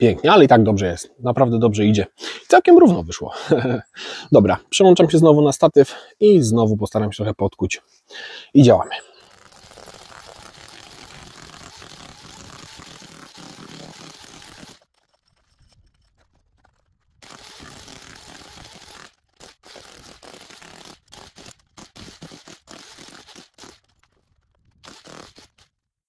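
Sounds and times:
hammer drill chiselling concrete: 8.9s - 24.1s, 24.8s - 25.7s.

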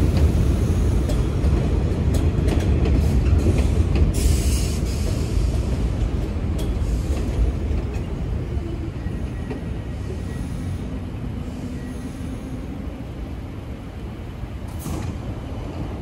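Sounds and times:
subway train rumble: 0.0s - 16.0s
air hiss of doors opening: 3.4s - 5.7s, 14.7s - 15.3s.

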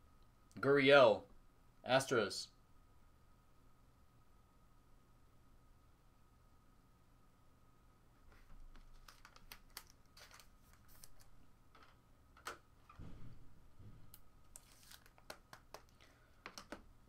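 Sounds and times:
trading cards clicking and tapping: 8.7s - 12.6s, 14.6s - 16.9s
soft low thump: 13.0s - 14.2s.

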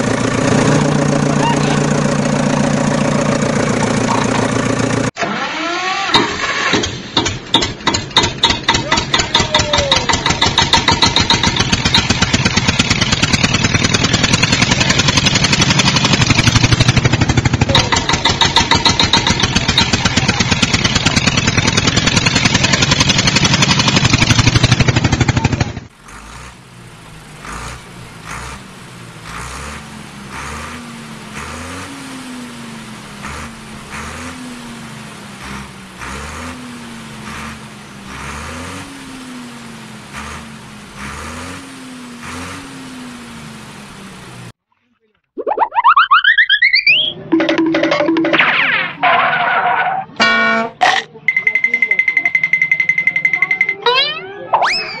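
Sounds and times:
tractor engine starting: 0.0s - 31.9s.

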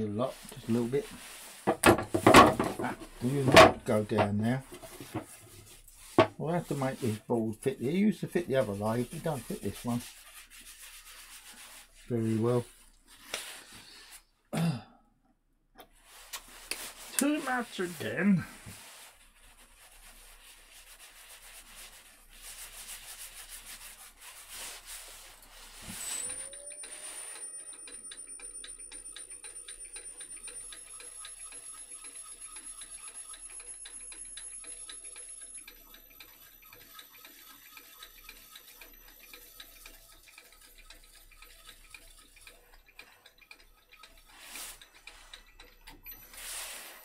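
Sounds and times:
fast even ticking: 26.2s - 46.2s.

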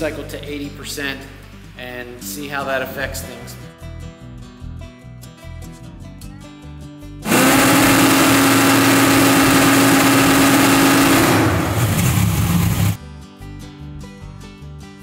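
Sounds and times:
drag car engine revving high: 7.2s - 13.0s.

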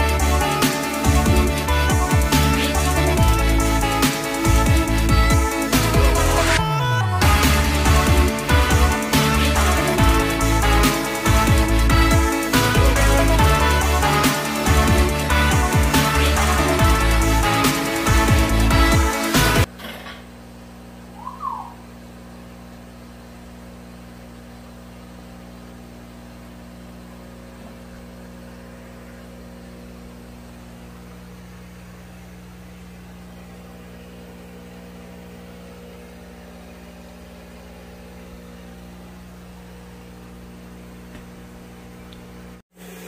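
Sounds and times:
low mechanical hum: 19.6s - 43.0s.

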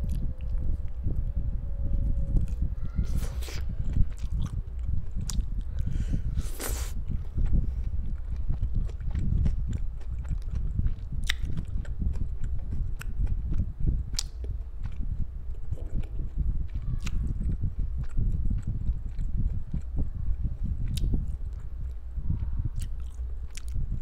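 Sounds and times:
wet chewing: 2.4s - 24.0s
mouth clicks: 8.4s - 22.0s.

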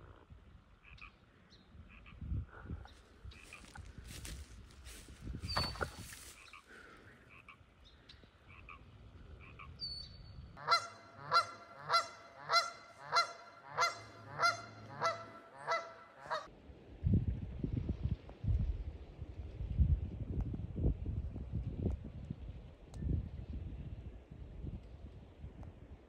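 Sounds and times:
goose honking: 10.6s - 16.5s.

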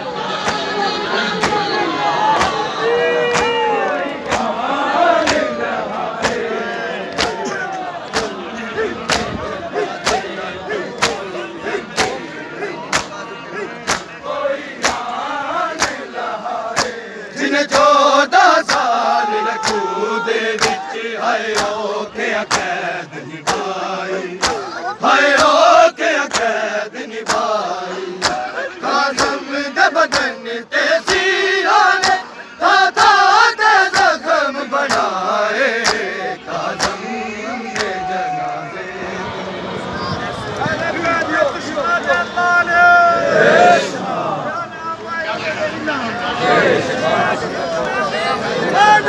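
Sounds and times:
men chanting: 0.0s - 49.0s
hands slapping chests: 2.4s - 2.6s, 3.3s - 3.6s, 4.2s - 4.6s, 5.2s - 5.5s, 6.2s - 6.5s, 7.1s - 7.5s, 8.1s - 8.4s, 9.0s - 9.4s, 10.0s - 10.3s, 11.0s - 11.2s, 12.9s - 13.2s, 13.8s - 14.1s, 15.8s - 16.0s, 16.7s - 17.0s, 18.6s - 19.0s, 19.6s - 19.9s, 20.6s - 20.8s, 21.5s - 21.8s, 22.5s - 22.7s, 23.4s - 23.8s, 24.4s - 24.7s, 26.3s - 26.6s, 27.2s - 27.5s, 28.2s - 28.4s, 34.8s - 35.2s, 35.8s - 36.1s, 36.7s - 37.0s.

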